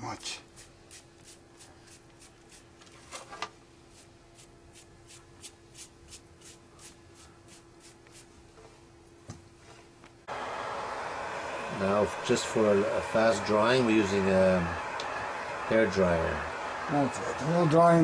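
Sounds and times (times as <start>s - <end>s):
brush strokes scratching: 0.5s - 2.7s, 3.9s - 8.8s.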